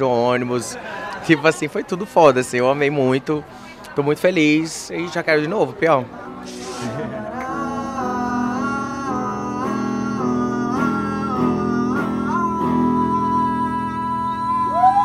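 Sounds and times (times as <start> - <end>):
guitar accompaniment: 5.4 - 15.0
woman singing into microphone: 6.8 - 15.0.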